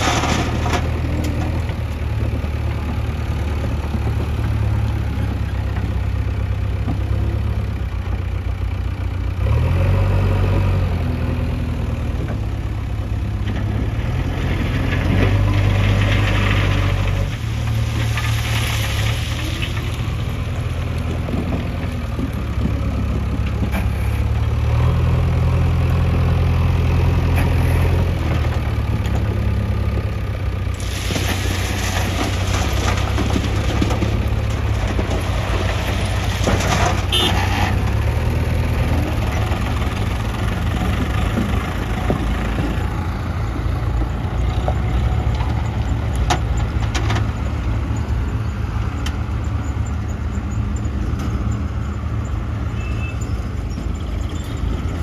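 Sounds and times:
diesel engine revving: 9.2 - 51.1.

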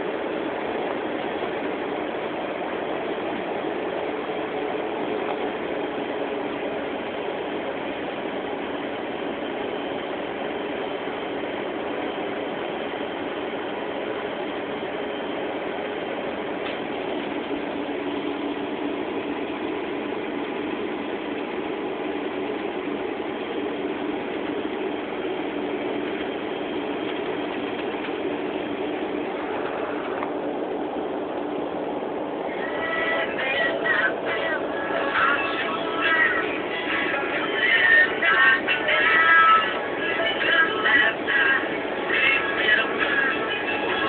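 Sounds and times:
constant low hum: 0.0 - 44.0
engine and road drone in cab: 0.0 - 44.0.

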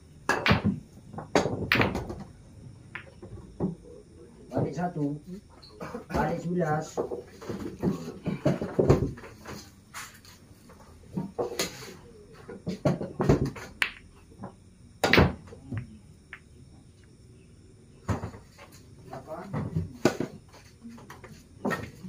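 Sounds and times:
pool balls clacking: 0.2 - 4.0, 6.1 - 9.7, 10.7 - 16.5.

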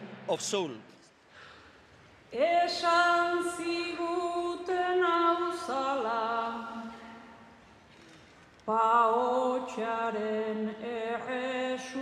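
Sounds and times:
woman singing a cappella: 2.3 - 7.5, 8.6 - 12.0.

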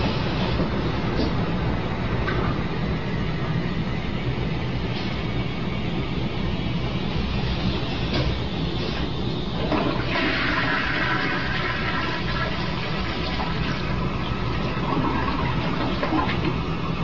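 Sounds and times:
toilet flushing: 7.1 - 17.0.

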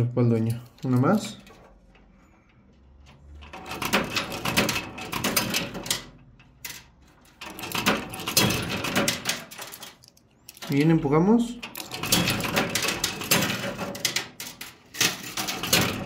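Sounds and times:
coins clattering in arcade machine: 3.4 - 16.0.

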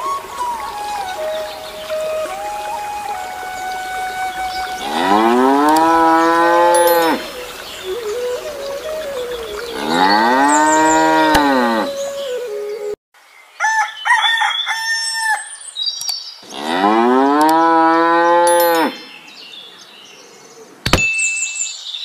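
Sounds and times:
high chiming calls: 0.0 - 13.0, 18.3 - 19.2, 20.9 - 22.0
cow mooing: 4.8 - 7.2, 9.8 - 11.9.

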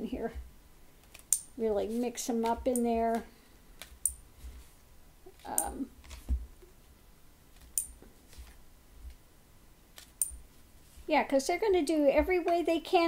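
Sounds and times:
cards being shuffled: 5.3 - 6.7, 7.5 - 8.6.

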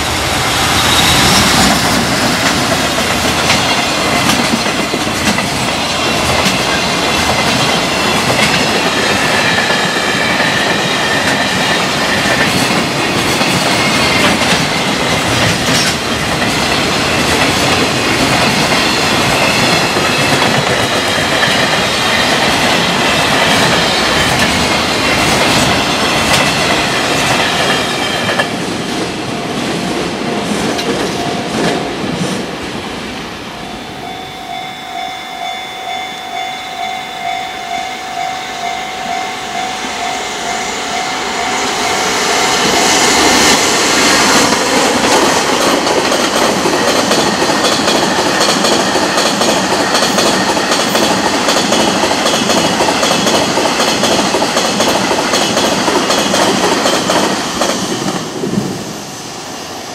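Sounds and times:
train wheels clattering over rails: 0.0 - 29.2, 41.5 - 58.8
high ringing wheel whine: 33.6 - 43.4.

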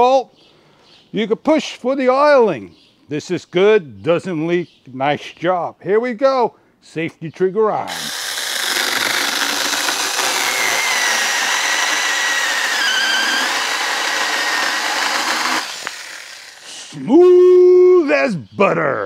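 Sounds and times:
electric chainsaw cutting log: 7.9 - 16.7.

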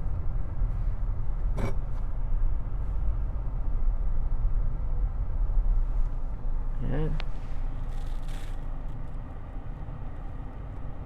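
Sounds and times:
road and engine rumble in car: 0.0 - 11.0.

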